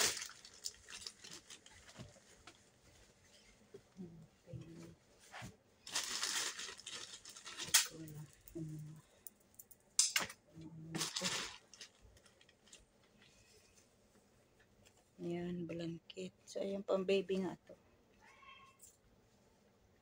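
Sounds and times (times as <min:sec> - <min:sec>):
plastic bags and cloth rustling: 0:00.0 - 0:09.0, 0:10.8 - 0:14.2.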